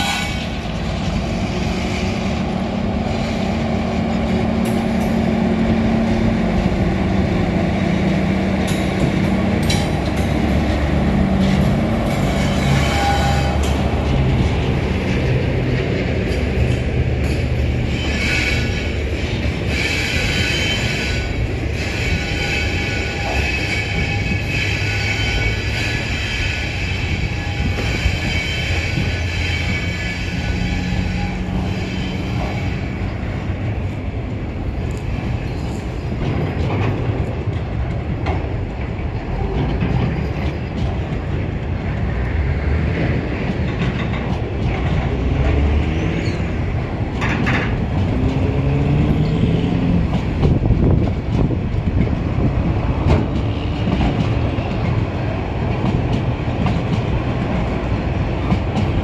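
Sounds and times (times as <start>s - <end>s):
train wheels rumbling on rail: 0.0s - 59.0s
high metallic squealing: 11.4s - 13.8s, 19.6s - 33.1s.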